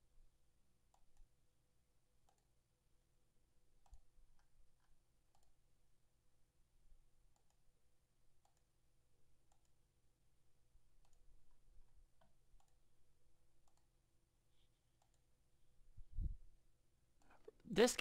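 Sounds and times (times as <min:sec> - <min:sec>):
computer mouse clicks: 0:00.9 - 0:01.3, 0:02.2 - 0:02.5, 0:03.8 - 0:05.6, 0:07.3 - 0:07.7, 0:08.4 - 0:08.8, 0:09.4 - 0:09.8, 0:11.0 - 0:11.6, 0:12.2 - 0:12.9, 0:13.6 - 0:13.9, 0:15.0 - 0:15.3.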